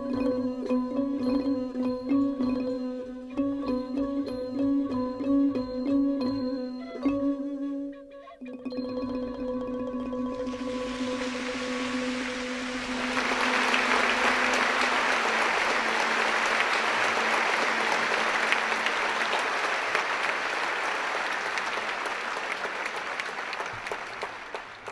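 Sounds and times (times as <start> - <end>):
audience applauding: 10.5 - 24.9.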